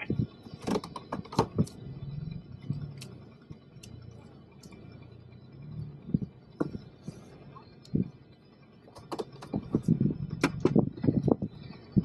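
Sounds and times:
engine and road drone: 0.0s - 12.0s
sharp ticks: 2.9s - 5.1s, 7.6s - 8.1s.

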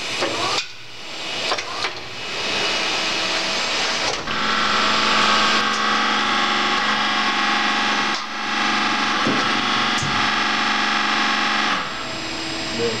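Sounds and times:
milling machine whine: 0.0s - 13.0s.

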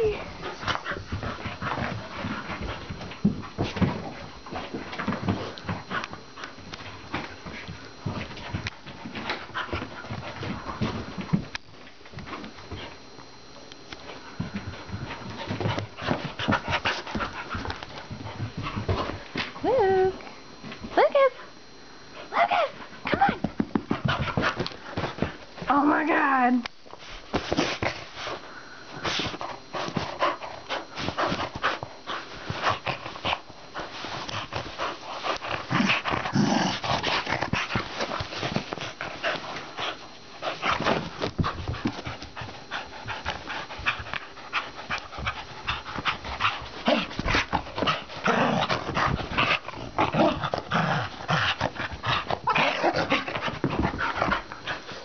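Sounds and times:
dogs panting: 0.0s - 11.4s, 14.1s - 19.4s, 22.1s - 25.6s, 27.5s - 55.0s
dogs scuffling and rustling: 0.0s - 19.7s, 22.2s - 55.0s
dogs growling: 35.2s - 38.1s, 44.5s - 55.0s.

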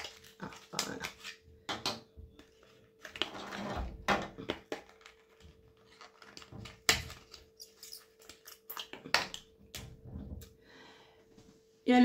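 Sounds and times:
packaging rustling: 4.6s - 9.0s.

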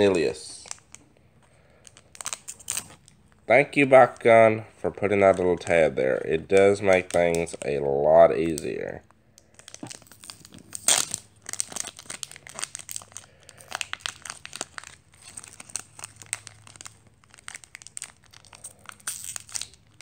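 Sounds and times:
foil pack tearing and crinkling: 9.6s - 20.0s.

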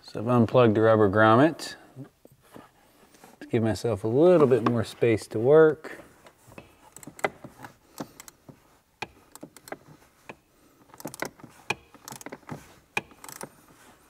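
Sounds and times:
small metallic rattles: 6.5s - 13.8s
hand driver clicking: 6.6s - 13.6s.

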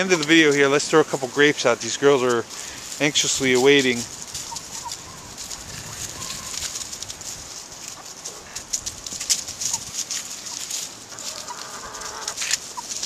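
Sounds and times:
chickens pecking and scratching: 0.0s - 13.0s
hens clucking: 0.0s - 13.0s.

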